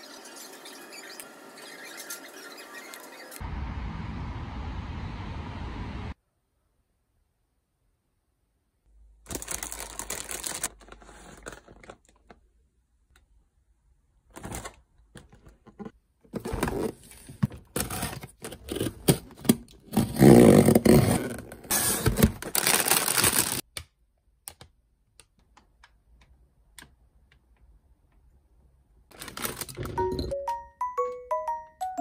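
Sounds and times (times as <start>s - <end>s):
plastic packaging crinkling: 9.3s - 12.4s, 22.0s - 23.6s, 29.1s - 30.1s.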